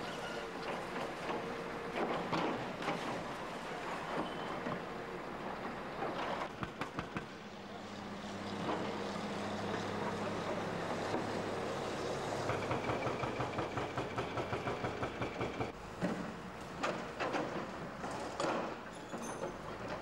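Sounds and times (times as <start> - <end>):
bulldozer diesel engine droning: 0.0 - 6.4, 7.5 - 14.2.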